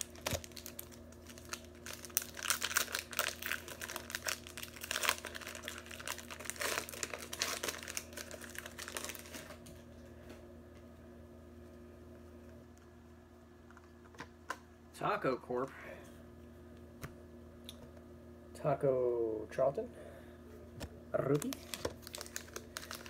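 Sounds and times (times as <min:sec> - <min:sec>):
plastic wrapper crinkling: 0:00.0 - 0:09.6, 0:21.3 - 0:23.0.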